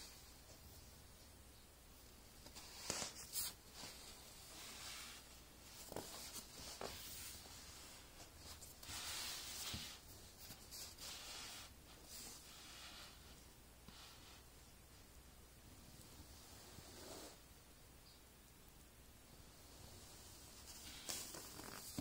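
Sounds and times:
fabric rubbing and rustling: 0:02.4 - 0:14.7, 0:15.8 - 0:17.4, 0:19.6 - 0:22.0.

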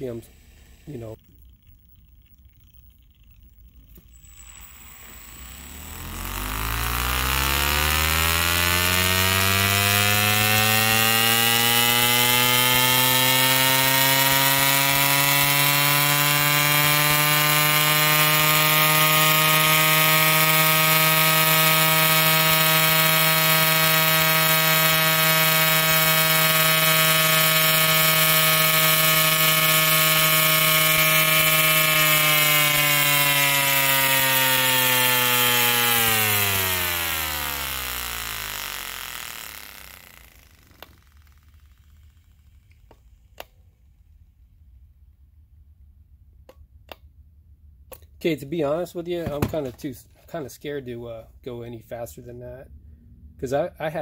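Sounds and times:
brushless motor whine: 0:03.8 - 0:42.8.

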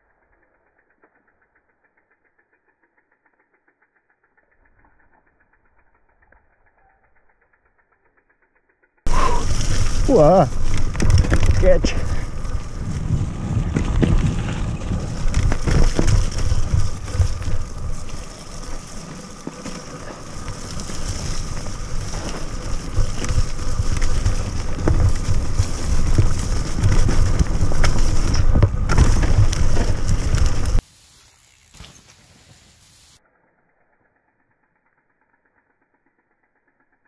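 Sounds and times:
bike tyre noise: 0:00.0 - 0:37.0
quiet forest ambience: 0:00.0 - 0:37.0
bike rattling over bumps: 0:09.1 - 0:30.8
wind buffeting microphone: 0:09.3 - 0:18.6.

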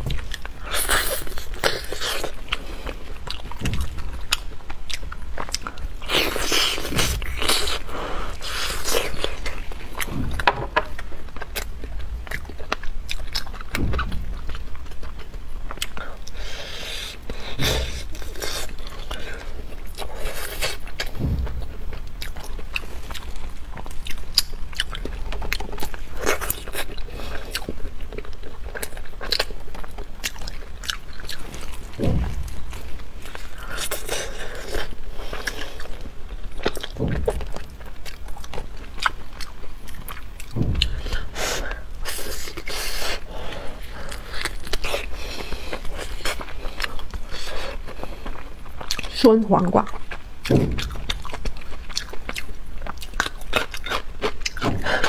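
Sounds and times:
chewing meat off bone: 0:00.0 - 0:49.2, 0:49.8 - 0:55.0
dull low thumps: 0:03.4 - 0:05.3, 0:09.6 - 0:15.9, 0:20.9 - 0:25.9, 0:31.4 - 0:33.6, 0:36.6 - 0:42.4, 0:50.4 - 0:51.5.

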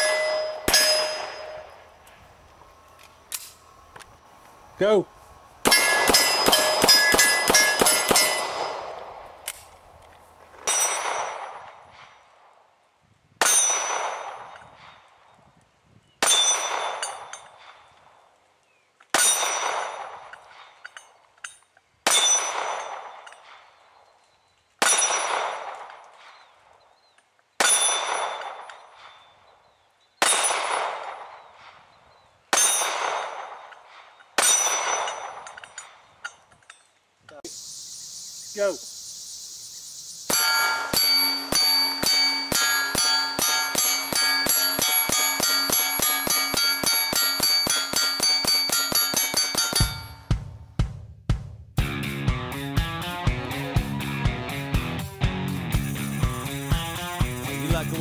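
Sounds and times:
steel targets clanging: 0:00.0 - 0:01.9, 0:05.6 - 0:08.8, 0:10.6 - 0:12.0, 0:13.4 - 0:14.8, 0:19.1 - 0:23.6, 0:24.8 - 0:26.0, 0:27.6 - 0:29.2, 0:32.5 - 0:37.4, 0:40.3 - 0:50.3.

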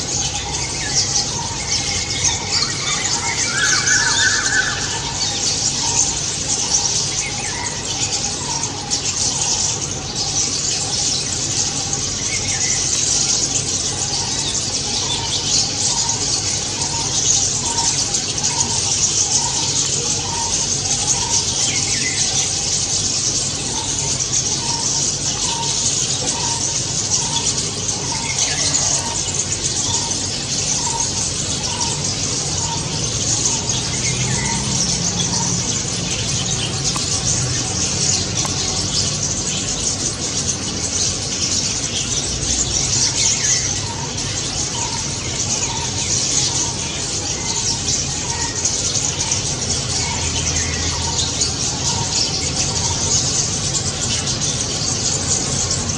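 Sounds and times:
flock of starlings chattering: 0:00.0 - 0:55.9.

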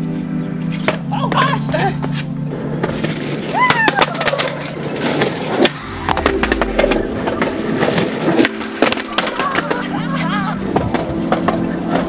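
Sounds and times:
low rumble: 0:05.6 - 0:08.8.

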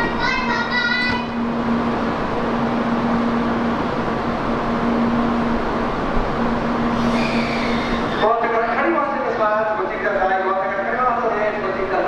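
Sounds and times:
train equipment rushing noise: 0:00.0 - 0:08.8
low hum: 0:00.0 - 0:11.9.

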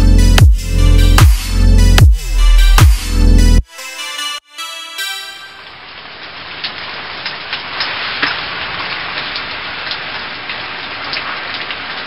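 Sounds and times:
steady rain hiss: 0:05.3 - 0:12.0.

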